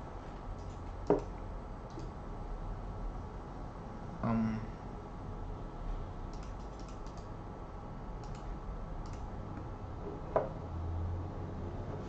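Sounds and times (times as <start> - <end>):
low electrical hum: 0.0 - 12.0
computer mouse clicking: 0.6 - 2.2, 6.3 - 7.3, 8.2 - 9.7.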